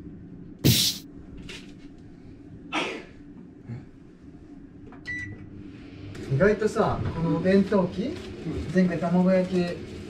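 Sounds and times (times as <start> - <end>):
low room hum: 0.0 - 10.0
microwave button beep: 5.0 - 5.4.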